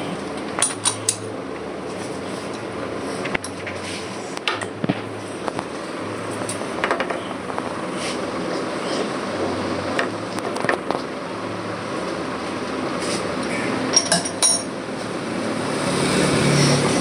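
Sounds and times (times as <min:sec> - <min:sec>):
machine shop background noise: 0:00.0 - 0:17.0
metallic clinks of metal parts: 0:13.9 - 0:14.7.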